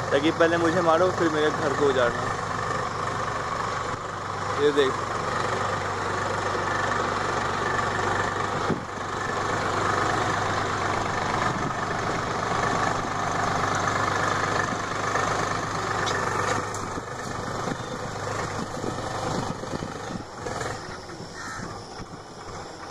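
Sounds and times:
tractor engine running: 0:00.0 - 0:22.9
birds calling: 0:15.5 - 0:22.9.

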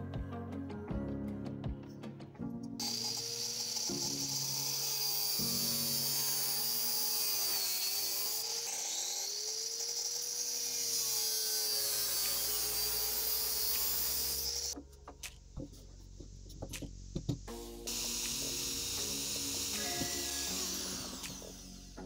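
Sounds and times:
angle grinder cutting metal: 0:02.8 - 0:14.8, 0:17.9 - 0:22.0.

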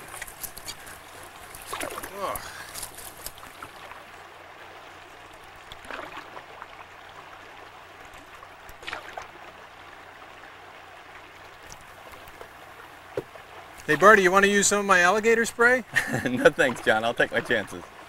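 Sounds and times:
soft paddle strokes: 0:00.0 - 0:14.1
water moving around canoe hulls: 0:00.0 - 0:18.0.

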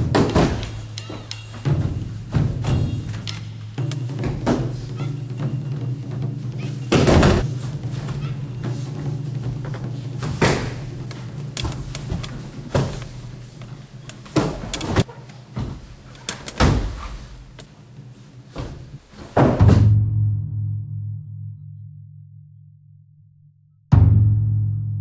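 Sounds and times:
body thudding onto mats: 0:06.9 - 0:11.1.

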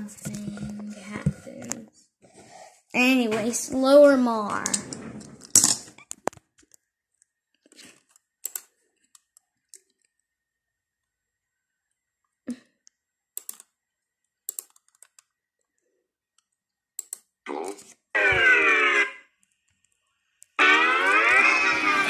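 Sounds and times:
laptop clicks and taps: 0:08.4 - 0:10.1, 0:13.4 - 0:13.7, 0:14.5 - 0:15.3.

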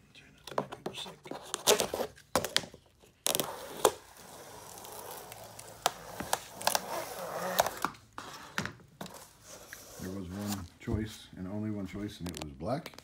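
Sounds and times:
cardboard crinkling: 0:00.6 - 0:11.2
blade slicing cardboard tape: 0:03.2 - 0:08.3.

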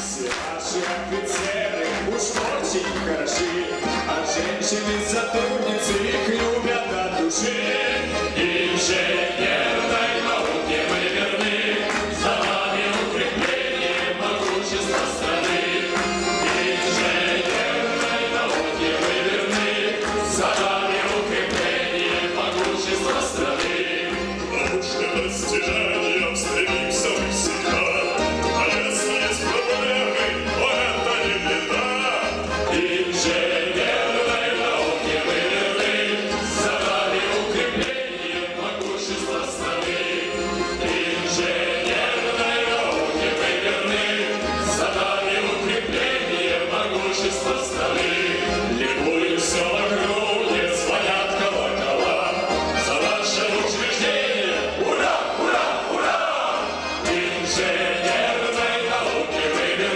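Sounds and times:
instrumental ensemble with strings: 0:00.0 - 0:59.9
male choir: 0:00.0 - 0:59.9
men singing into microphones: 0:00.0 - 0:59.9.

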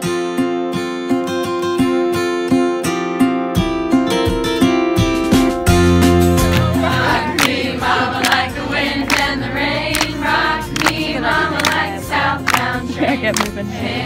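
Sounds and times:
group of voices singing a chant: 0:06.6 - 0:14.0.

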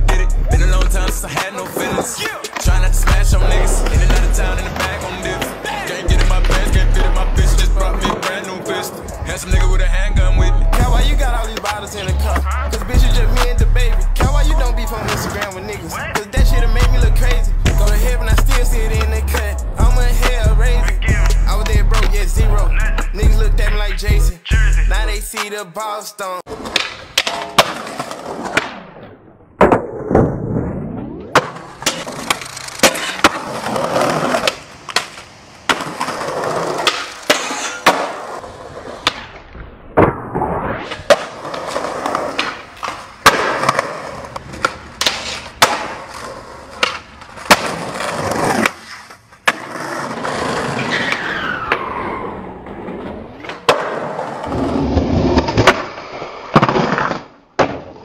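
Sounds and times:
skateboard wheels rolling on concrete: 0:00.0 - 0:58.0
skateboard landing clacks: 0:26.6 - 0:30.4, 0:31.2 - 0:40.4, 0:41.0 - 0:50.4, 0:53.0 - 0:54.6
skateboard tail pops: 0:26.6 - 0:38.3, 0:39.0 - 0:49.7.

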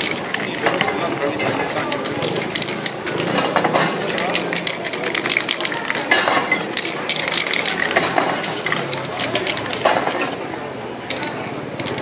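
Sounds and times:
crowd murmur: 0:00.0 - 0:12.0
spray cans clinking and rattling: 0:00.0 - 0:12.0.

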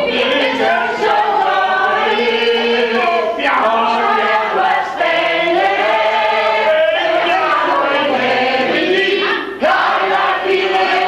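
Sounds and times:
group of people singing: 0:00.0 - 0:11.0.

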